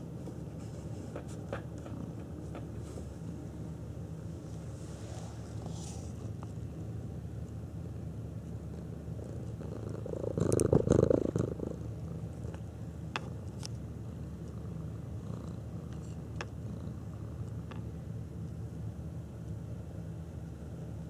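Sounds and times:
cat purring: 0:00.6 - 0:07.2, 0:08.3 - 0:13.4, 0:14.0 - 0:17.8.

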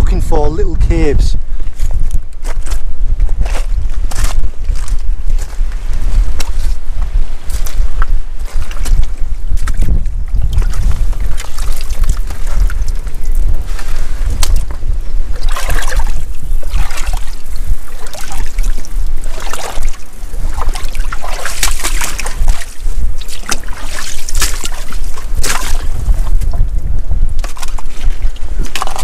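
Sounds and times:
wind buffeting microphone: 0:00.0 - 0:29.0
water sloshing and splashing: 0:07.5 - 0:26.7, 0:27.4 - 0:29.0.

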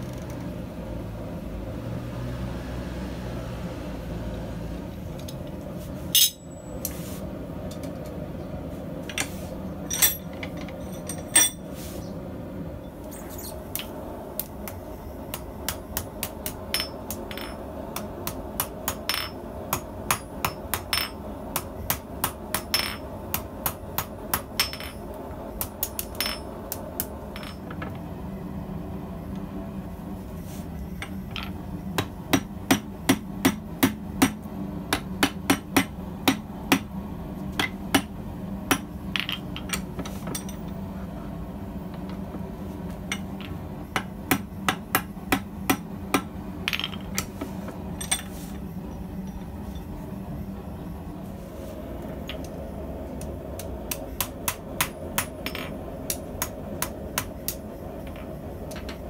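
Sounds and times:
steady hum: 0:00.0 - 0:59.0
hammer striking hot steel: 0:14.4 - 0:27.1, 0:32.0 - 0:37.0, 0:43.1 - 0:46.3, 0:53.6 - 0:57.6.

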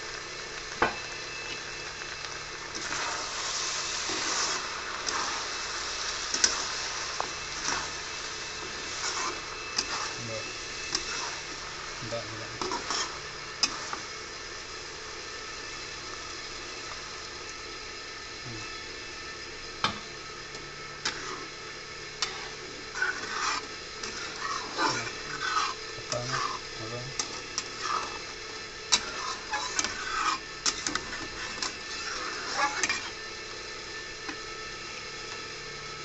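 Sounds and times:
food sizzling: 0:00.0 - 0:36.0
metal spatula scraping pan: 0:12.2 - 0:14.0, 0:21.0 - 0:21.6, 0:22.2 - 0:28.3, 0:28.9 - 0:33.1.

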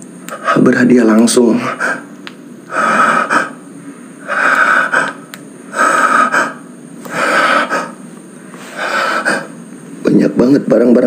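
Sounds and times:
person breathing loudly: 0:02.7 - 0:09.7.

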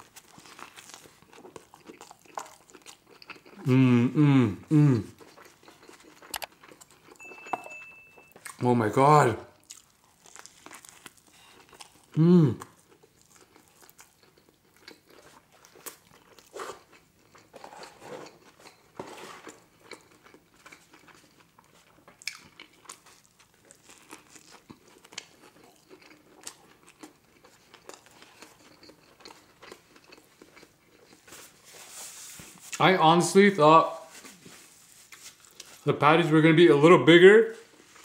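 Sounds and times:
wet chewing: 0:00.0 - 0:03.7, 0:05.1 - 0:07.3, 0:09.6 - 0:18.8, 0:19.4 - 0:31.7
biting into burger: 0:09.6 - 0:31.5.

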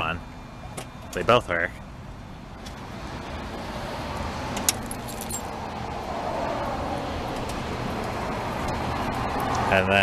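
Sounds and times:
keys jangling: 0:04.7 - 0:05.5.

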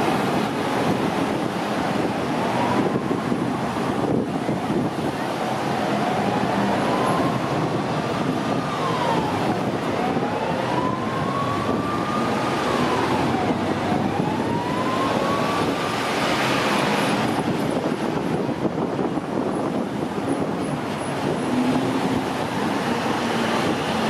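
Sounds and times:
siren wailing: 0:02.4 - 0:04.6, 0:05.3 - 0:17.2
cars driving past: 0:10.5 - 0:18.5.

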